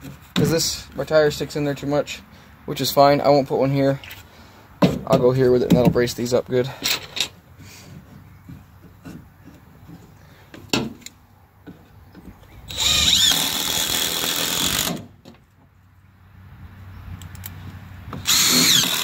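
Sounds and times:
power drill driving screw: 0:12.7 - 0:15.1, 0:18.2 - 0:19.0.

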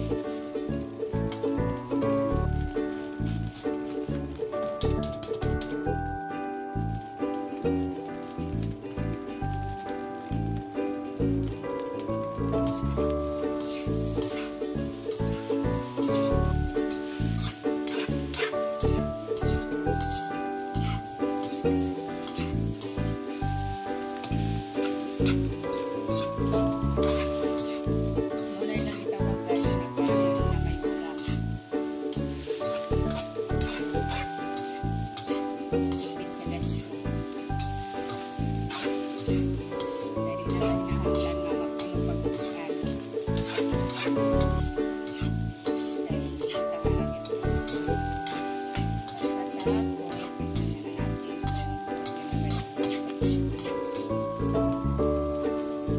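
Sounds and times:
background music: 0:00.0 - 0:55.9
light sizzle: 0:00.0 - 0:55.9
metal spatula scraping a wok: 0:12.6 - 0:55.8.

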